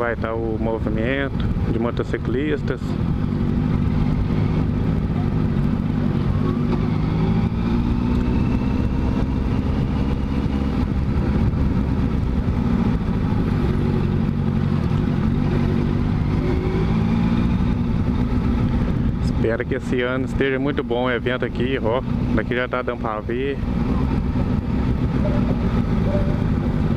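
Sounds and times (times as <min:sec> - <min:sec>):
motorcycle engine running: 0:00.0 - 0:26.9.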